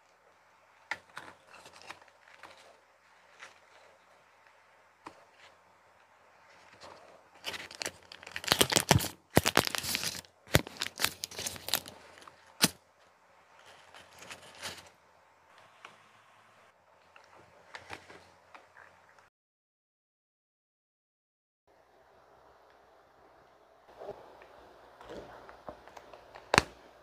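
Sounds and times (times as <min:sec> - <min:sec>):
paper rustling: 0:00.8 - 0:12.8, 0:13.5 - 0:15.0
paper liner tearing and crinkling: 0:01.0 - 0:03.9, 0:06.7 - 0:12.8, 0:13.6 - 0:14.9.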